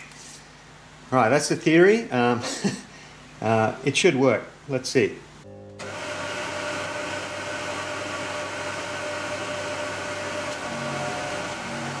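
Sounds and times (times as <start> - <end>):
milling machine whining: 5.8 - 12.0.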